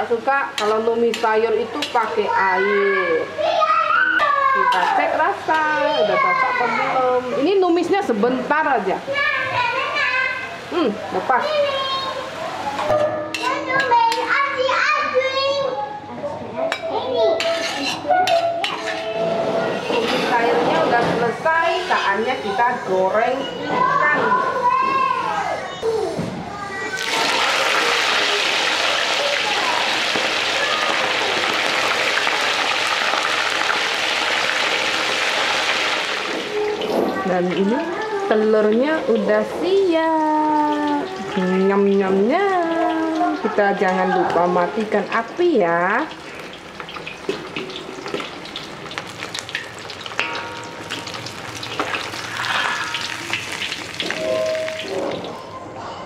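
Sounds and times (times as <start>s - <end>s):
fish sizzling in hot oil: 21.2s - 23.3s, 27.0s - 55.4s.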